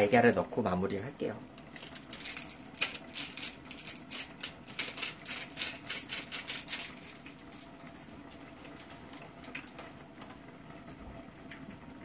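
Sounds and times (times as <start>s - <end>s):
faint steady hum: 0.0s - 12.0s
boiling water bubbles popping: 7.2s - 12.0s.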